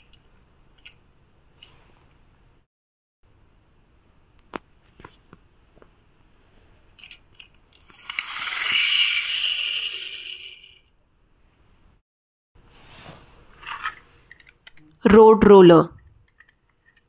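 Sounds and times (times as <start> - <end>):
toy car clicks while handled: 7.0 - 10.8
toy car wheels whirring: 7.0 - 10.9.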